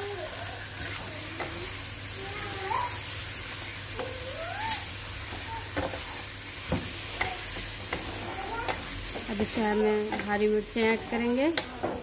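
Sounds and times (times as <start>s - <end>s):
meat sizzling in hot oil: 0.0s - 12.0s
spatula scraping a pot: 7.1s - 10.3s
spatula clicking on pot: 11.4s - 12.0s.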